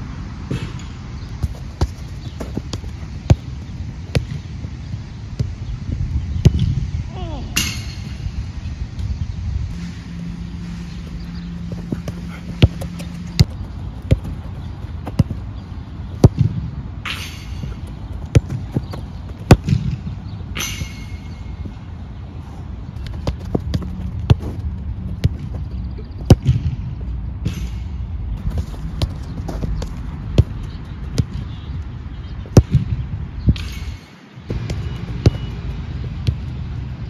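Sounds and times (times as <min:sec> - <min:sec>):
football kicked on artificial turf: 0:01.4 - 0:04.4, 0:18.2 - 0:20.0.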